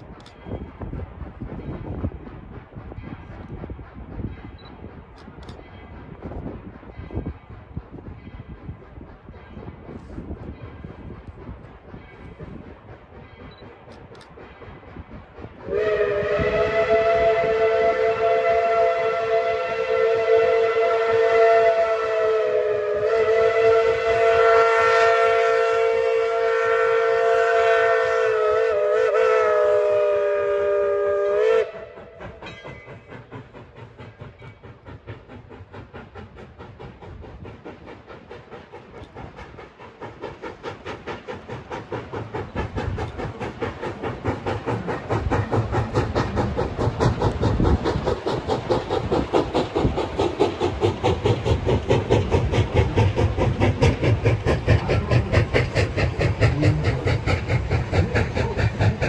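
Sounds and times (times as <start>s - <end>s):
locomotive exhaust chuffing: 0.0s - 59.0s
steam hissing: 0.0s - 59.0s
steam locomotive whistle: 15.6s - 32.4s.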